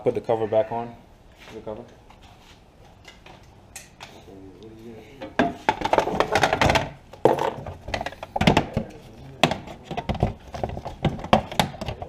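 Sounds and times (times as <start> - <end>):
plastic engine cover knocks and clunks: 5.4 - 12.0.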